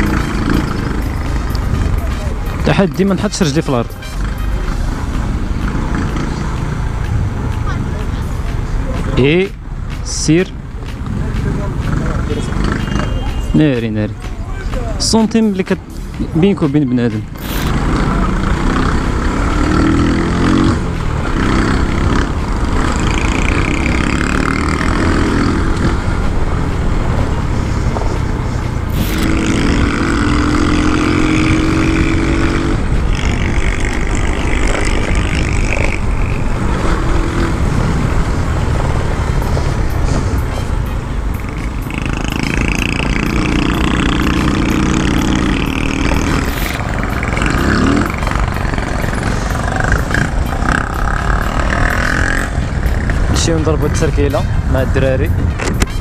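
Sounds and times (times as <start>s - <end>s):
scooter engine running: 0.0s - 13.5s, 14.4s - 54.8s
wind rumble on microphone: 31.3s - 41.8s, 52.2s - 56.0s.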